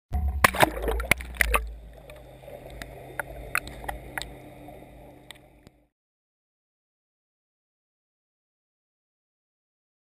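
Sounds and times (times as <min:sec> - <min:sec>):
muffled underwater rumble: 0:00.2 - 0:05.9
faint constant hum: 0:00.6 - 0:05.9.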